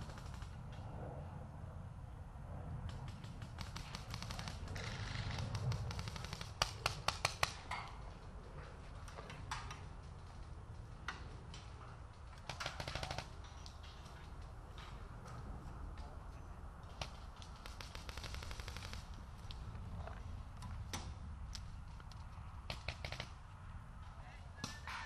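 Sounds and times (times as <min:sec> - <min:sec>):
paintball markers firing: 0:03.0 - 0:07.8, 0:16.8 - 0:19.6, 0:22.7 - 0:23.4.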